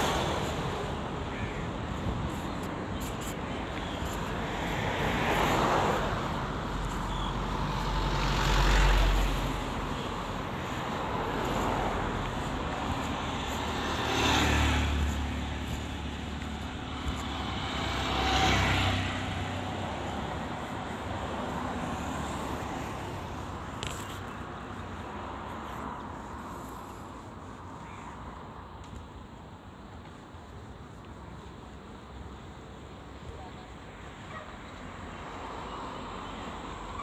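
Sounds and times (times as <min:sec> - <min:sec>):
cars passing: 0:00.0 - 0:37.0
steady traffic background: 0:00.0 - 0:37.0.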